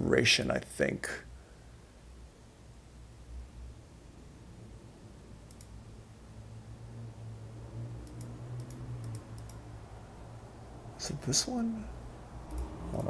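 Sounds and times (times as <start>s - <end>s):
faint low hum: 0.0s - 13.0s
computer mouse clicking: 5.4s - 5.8s, 8.0s - 9.6s, 12.4s - 13.0s.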